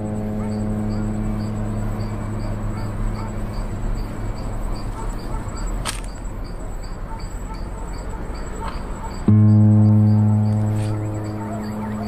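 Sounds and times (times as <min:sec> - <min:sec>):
low rumble: 0:00.0 - 0:04.9, 0:09.3 - 0:12.0
insects chirping: 0:00.0 - 0:12.0.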